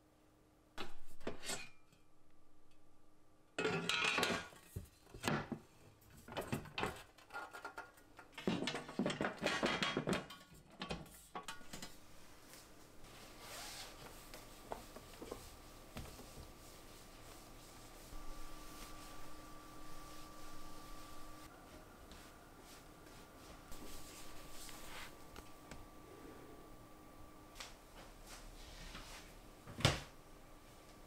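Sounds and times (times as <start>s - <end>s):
feather duster rustling: 11.8s - 25.6s.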